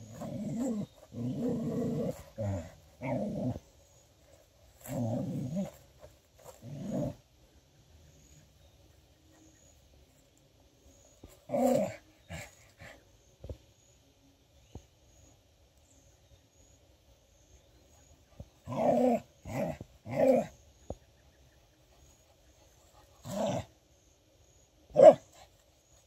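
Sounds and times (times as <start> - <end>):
dog barking: 25.0 - 25.2.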